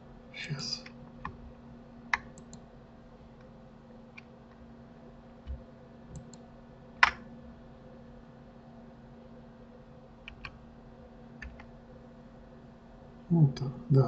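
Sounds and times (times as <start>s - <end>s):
steady low hum: 0.0s - 14.0s
computer keyboard and mouse clicks: 2.1s - 2.6s, 5.4s - 6.4s, 7.0s - 7.2s, 10.2s - 10.6s, 11.4s - 11.7s.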